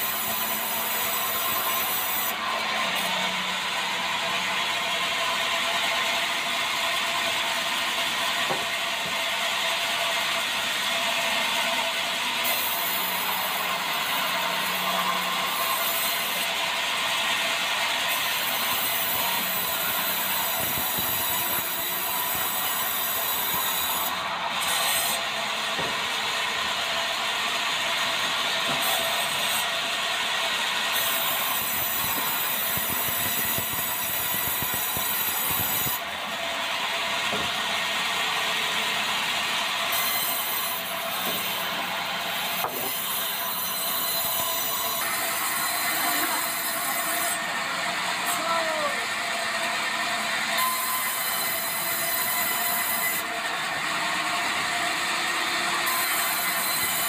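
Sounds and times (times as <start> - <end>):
band saw cutting through log: 0.0 - 57.0.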